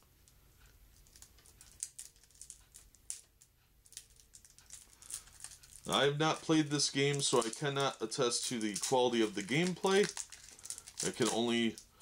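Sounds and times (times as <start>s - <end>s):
cards clicking and tapping: 3.9s - 11.8s.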